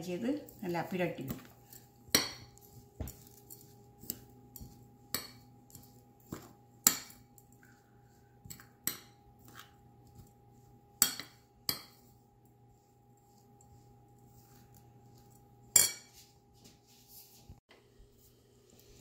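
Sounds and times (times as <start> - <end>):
metal spoon clinking on ceramic bowl: 15.7 - 16.2.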